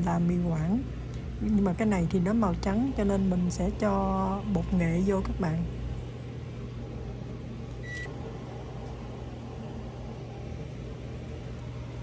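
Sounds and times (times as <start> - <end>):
low background hum: 0.0 - 12.0
short high beep: 7.8 - 8.1.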